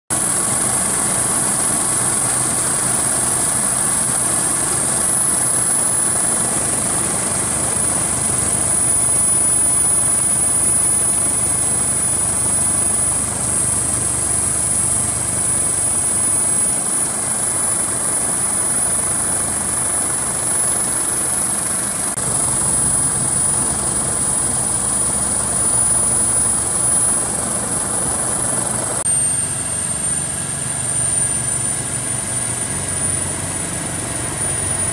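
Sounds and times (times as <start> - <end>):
helicopter engine and rotor drone: 0.1 - 34.9
high-pitched turbine whine: 0.1 - 34.9.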